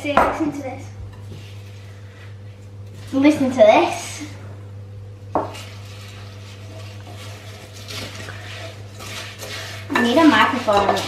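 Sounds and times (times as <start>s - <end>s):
steady low hum: 0.0s - 11.0s
spoons stirring crispy cereal: 5.5s - 11.0s.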